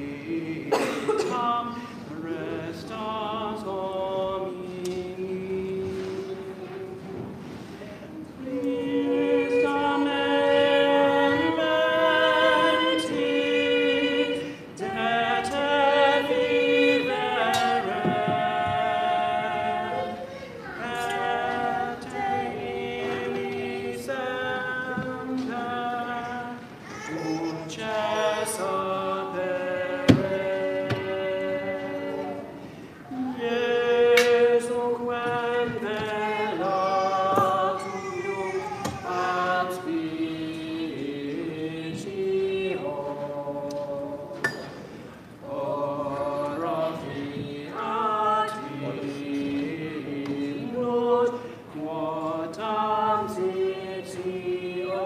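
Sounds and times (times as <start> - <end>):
choir singing a cappella: 0.0 - 55.0.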